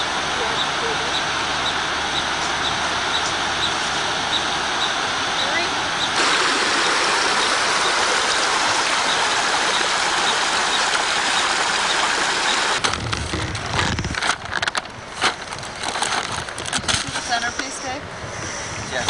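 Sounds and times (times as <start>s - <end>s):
rushing water hiss: 0.0s - 12.8s.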